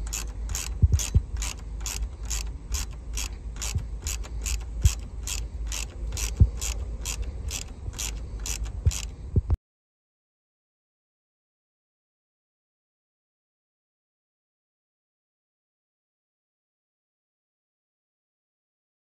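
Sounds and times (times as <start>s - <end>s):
ratchet wrench clicking: 0.0s - 9.2s.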